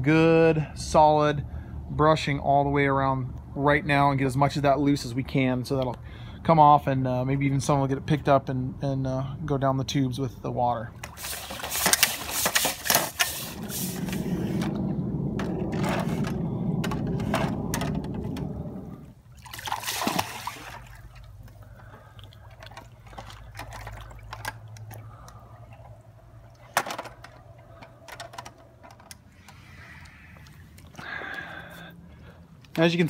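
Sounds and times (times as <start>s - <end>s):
water splashing: 10.9s - 27.8s
pool brush sweeping through water: 11.0s - 21.4s.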